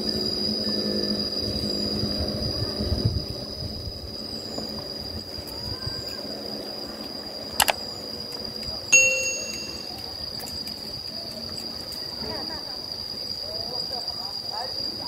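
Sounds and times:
high-pitched insect drone: 0:00.0 - 0:15.0
bright bell ding: 0:09.0 - 0:10.0.

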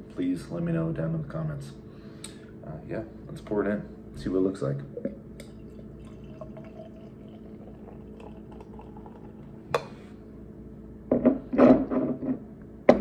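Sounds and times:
beer pouring into a glass: 0:05.0 - 0:09.9
bottle and glass knocking on table: 0:11.1 - 0:13.0.

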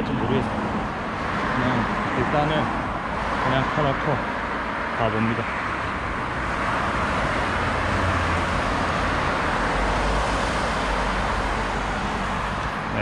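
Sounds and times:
road traffic rushing: 0:00.0 - 0:13.0.

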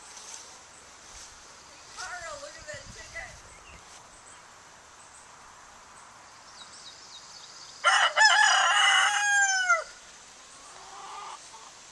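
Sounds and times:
rooster crowing: 0:07.8 - 0:10.0.

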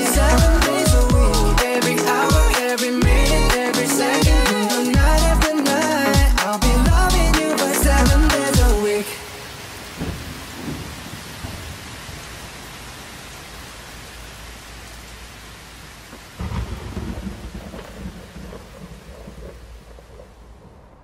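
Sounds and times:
song: 0:00.0 - 0:09.3
heavy rain falling: 0:00.0 - 0:21.0
low rumble of thunder: 0:16.4 - 0:21.0.

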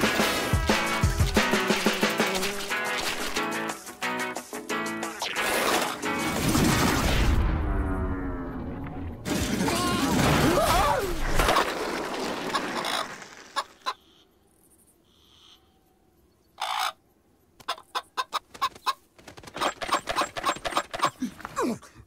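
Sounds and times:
cartoon chicken squawking and clucking: 0:12.5 - 0:14.1, 0:17.6 - 0:21.2.

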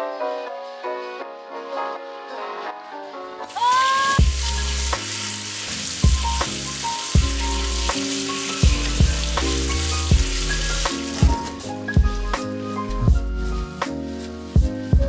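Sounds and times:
background music with beat: 0:00.0 - 0:15.0
tap water running: 0:03.5 - 0:12.4.

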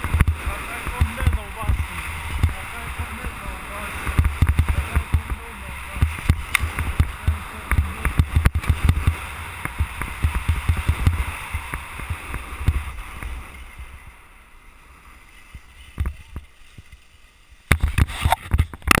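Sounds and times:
wind buffeting microphone: 0:00.0 - 0:14.2
skis scraping over snow: 0:00.0 - 0:18.7.

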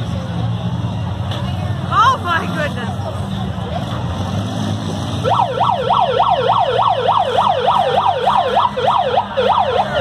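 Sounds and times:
car engines running: 0:00.0 - 0:10.0
electronic siren yelping: 0:05.2 - 0:10.0.

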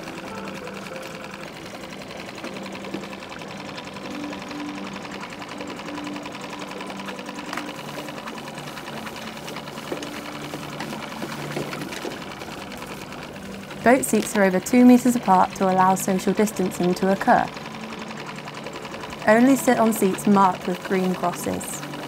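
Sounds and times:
outboard motor idling: 0:00.0 - 0:22.0.

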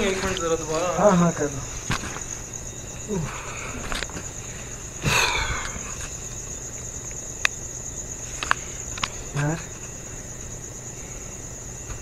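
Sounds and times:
crickets chirping: 0:00.0 - 0:12.0.

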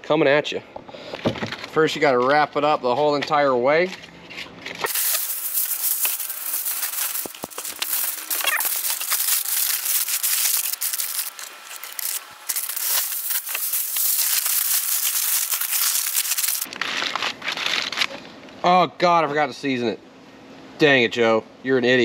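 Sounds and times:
aluminium foil crinkling: 0:04.8 - 0:18.2.

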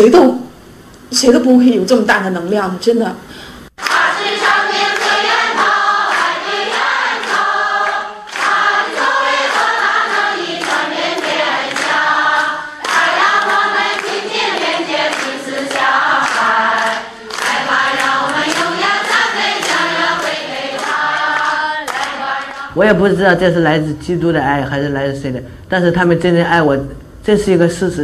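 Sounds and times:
choir singing: 0:03.8 - 0:22.8.

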